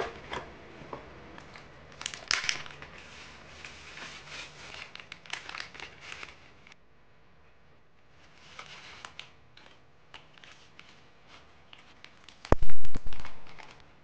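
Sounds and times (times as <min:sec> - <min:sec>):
plastic pouch crinkling: 0:04.2 - 0:06.5, 0:12.1 - 0:13.8.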